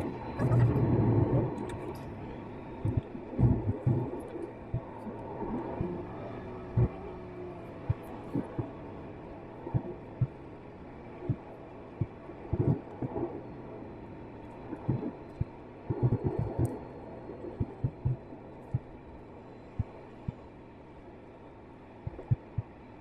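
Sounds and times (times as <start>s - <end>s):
car road hum: 0.0s - 10.6s.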